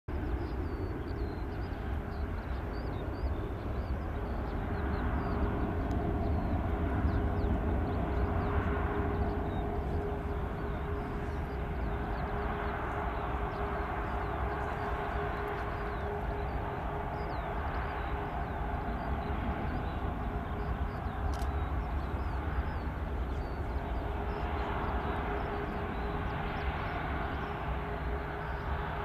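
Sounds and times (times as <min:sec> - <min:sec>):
jet engines roaring with whine: 0:00.1 - 0:29.0.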